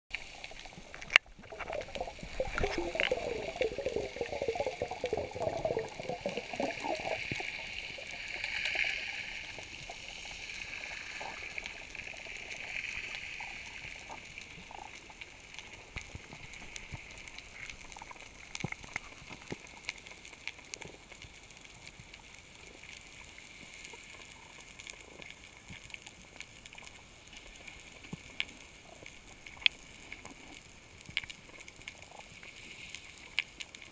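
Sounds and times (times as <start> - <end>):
faint clicks: 0.1 - 7.8
muffled underwater hiss: 0.1 - 33.9
underwater bubbling and gurgling: 0.1 - 33.9.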